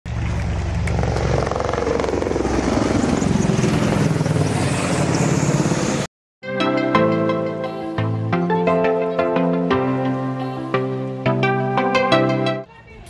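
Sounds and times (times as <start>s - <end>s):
helicopter rotor chop and turbine: 0.1s - 6.1s.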